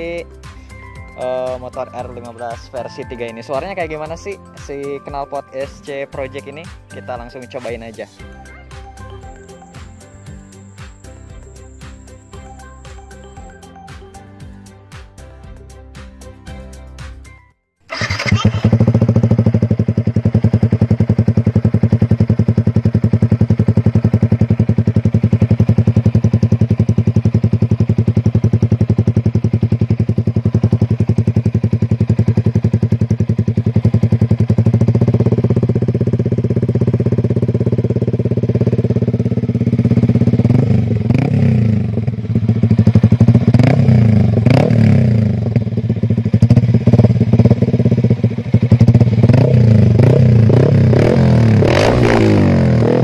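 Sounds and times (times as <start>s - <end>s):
exhaust rattle: 17.9s - 53.0s
motorcycle engine revving: 17.9s - 53.0s.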